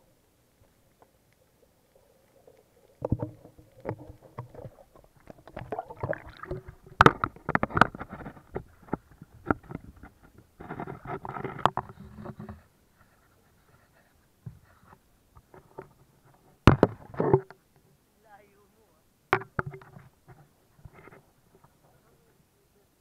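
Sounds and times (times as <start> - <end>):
water splashing: 0.4 - 8.3.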